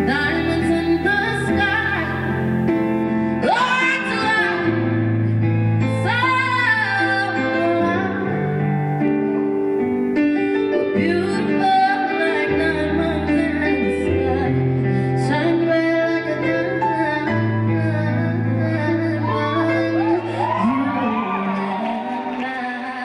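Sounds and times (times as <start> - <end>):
woman singing vocal runs: 0.0 - 2.5
sustained bass notes: 0.0 - 6.8
keyboard chords: 0.0 - 23.0.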